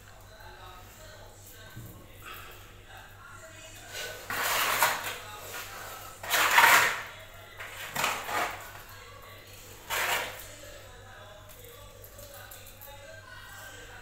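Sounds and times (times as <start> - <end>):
mortar scraped from plastic basin: 3.9 - 8.8, 9.7 - 10.5.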